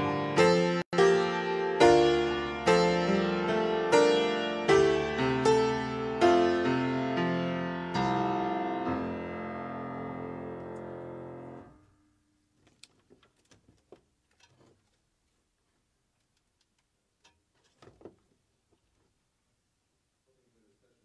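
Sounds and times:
piano chords: 0.0 - 11.9.

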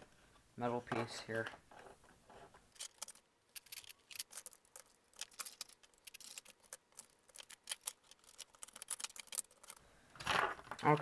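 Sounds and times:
laptop parts clicking and rattling: 2.7 - 11.0.

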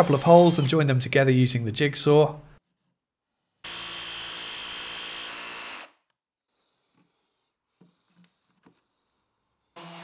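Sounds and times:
jigsaw cutting plywood: 3.7 - 6.0.

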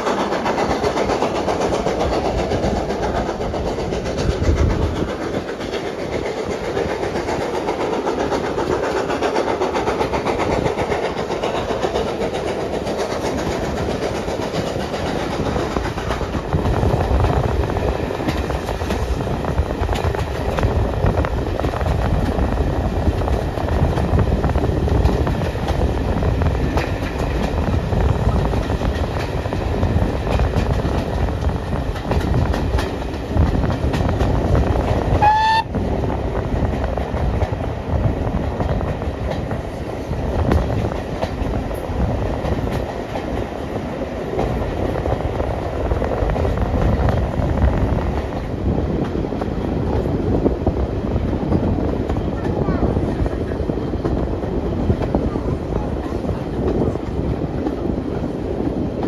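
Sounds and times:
wheels clicking over rail joints: 0.0 - 35.7, 36.6 - 50.2
train wheels rumbling: 0.0 - 59.0
wind: 0.0 - 59.0
locomotive whistle: 35.2 - 35.7.

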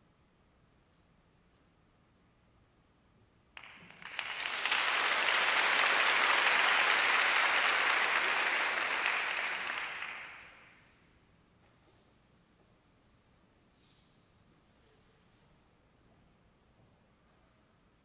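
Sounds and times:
audience applauding: 3.6 - 10.8.

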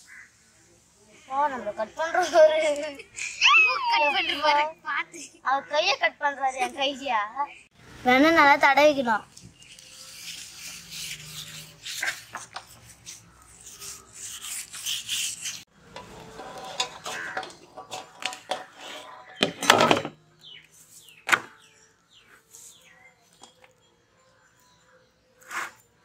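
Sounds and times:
birds chirping: 1.1 - 8.0, 8.6 - 14.6, 16.2 - 26.0
wrapped butter rubbing on metal tray: 9.6 - 17.4.

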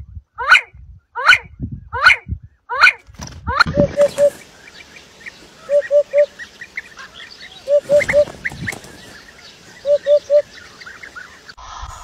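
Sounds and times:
faint chirps of other birds: 3.6 - 11.6
hoopoe singing low oop notes: 3.6 - 11.6.

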